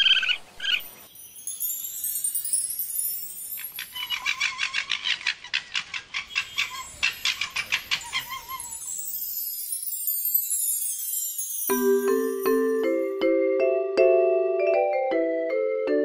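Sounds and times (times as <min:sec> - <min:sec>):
light chiming music: 0:01.1 - 0:04.3, 0:08.0 - 0:16.0
animal chattering call: 0:03.9 - 0:08.9.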